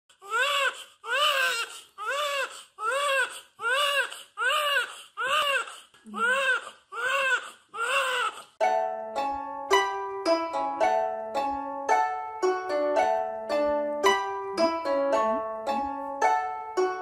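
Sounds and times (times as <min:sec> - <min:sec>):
newborn baby crying: 0:00.1 - 0:08.6.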